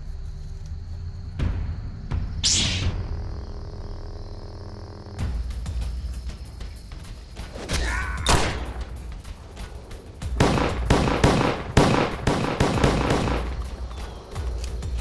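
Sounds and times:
film score with low bass: 0.0 - 15.0
pistol shots: 10.4 - 13.6.

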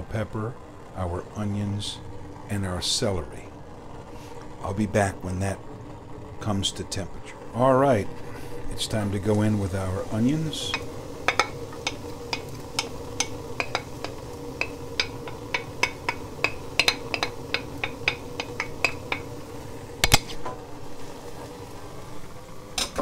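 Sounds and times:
onions crackling in oil: 0.0 - 23.0.

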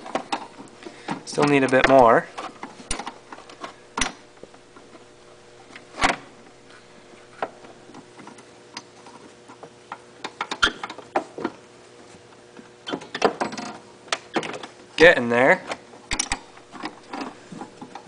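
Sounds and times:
faint steady hum: 0.0 - 18.0
wrenches clinking on metal bolt: 16.1 - 17.4.

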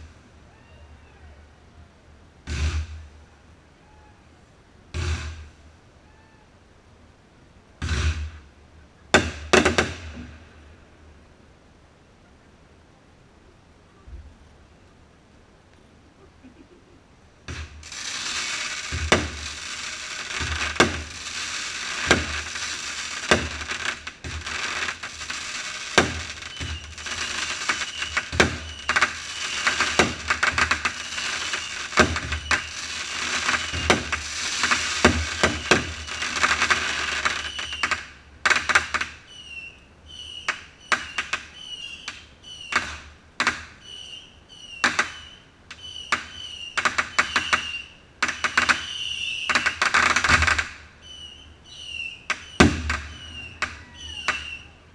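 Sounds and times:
firework crackling: 0.0 - 0.3, 2.4 - 3.2, 4.9 - 5.6, 7.8 - 10.8, 17.4 - 54.9
firework shells bursting: 9.1 - 10.4, 17.5 - 39.2, 44.7 - 50.9, 51.8 - 54.7.

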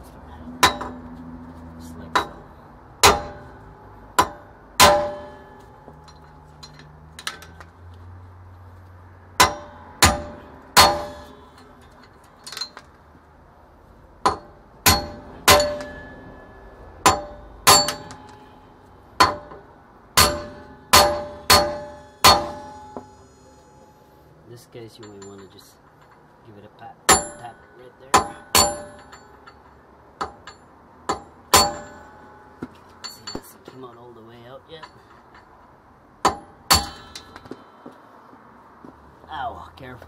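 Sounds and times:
hammer clanging on metal: 0.6 - 1.0, 2.1 - 7.7, 9.4 - 12.9, 14.2 - 24.2, 24.9 - 26.3, 27.1 - 35.6, 36.2 - 38.0.

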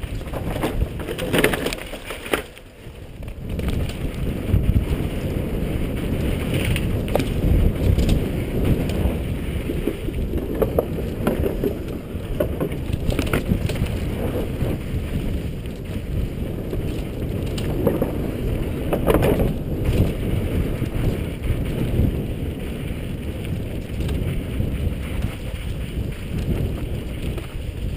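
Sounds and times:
bike rattling and knocking: 0.0 - 27.9
tyres rumbling over dirt: 0.0 - 27.9
wind buffeting microphone: 0.0 - 27.9.

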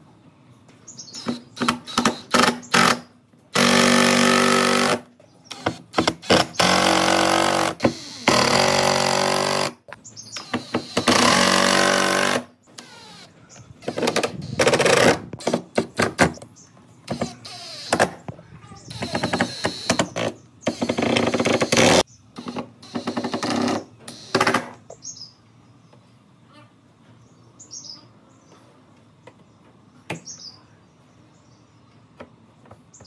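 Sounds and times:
impact driver hammering screws: 1.2 - 9.8, 10.4 - 16.4, 18.9 - 24.7.

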